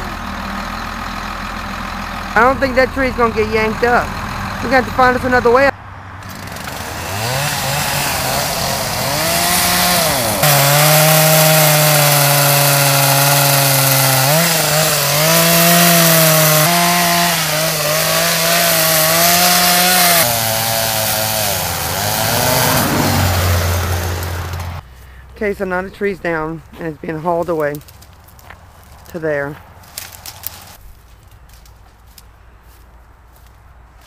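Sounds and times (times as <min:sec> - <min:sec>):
chainsaw cutting wood: 0:06.2 - 0:24.8, 0:29.9 - 0:30.8.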